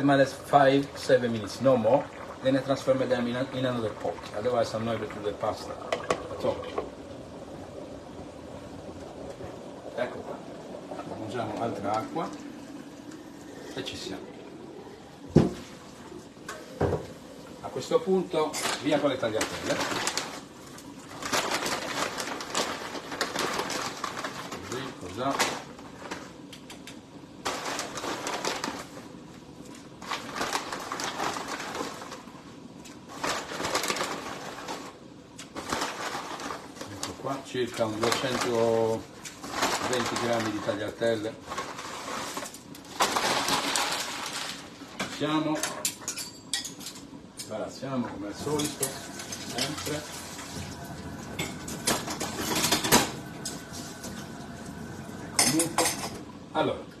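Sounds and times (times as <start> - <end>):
crackly rustling: 0.0 - 45.8, 48.1 - 56.2
pots bubbling on stove: 0.0 - 57.0
metal utensils clinking on pot: 45.6 - 47.5, 48.5 - 50.0.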